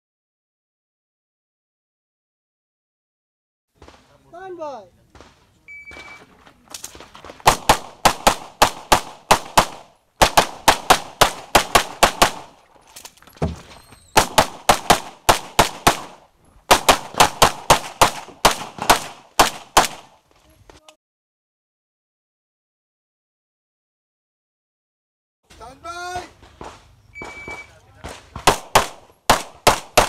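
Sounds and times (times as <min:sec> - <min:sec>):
pistol rapid fire: 0:07.4 - 0:12.6, 0:14.2 - 0:20.2, 0:26.6 - 0:30.0.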